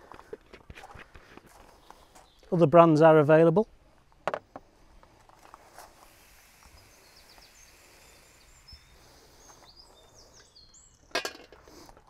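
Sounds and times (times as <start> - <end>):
faint outdoor background noise: 0.0 - 12.0
distant bird chirps: 6.5 - 11.9.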